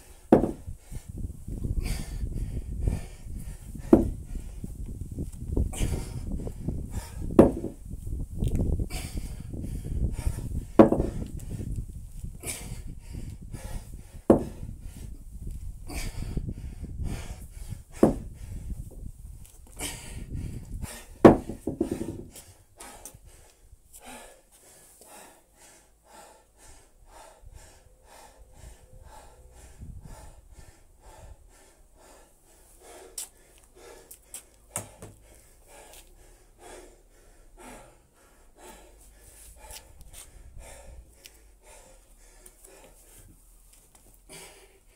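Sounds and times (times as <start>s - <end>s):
man panting: 0.0s - 8.0s, 8.7s - 19.0s, 19.6s - 43.3s, 44.1s - 44.9s
sharp thuds: 0.3s - 0.7s, 3.8s - 4.2s, 7.3s - 7.8s, 10.8s - 11.2s, 14.3s - 14.6s, 18.0s - 18.3s, 21.2s - 22.3s
low rumble of movement: 0.4s - 22.6s, 27.5s - 31.6s.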